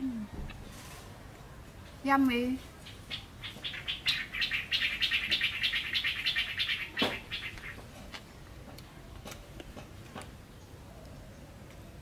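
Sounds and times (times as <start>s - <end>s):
bird chattering chirps: 2.8s - 7.8s.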